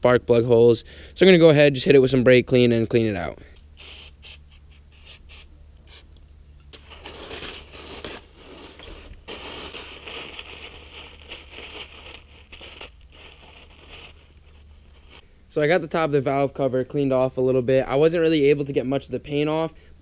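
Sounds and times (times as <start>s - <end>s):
paper rustling: 6.7s - 15.2s.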